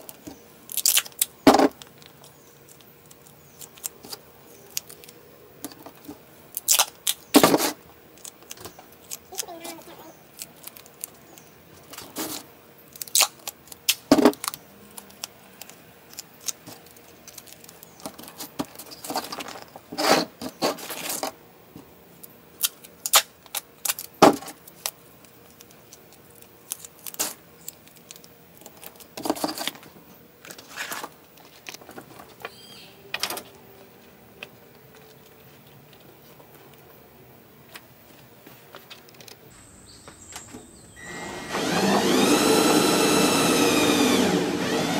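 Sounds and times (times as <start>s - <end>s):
aluminium foil crinkling: 0.0s - 21.3s, 22.1s - 32.6s.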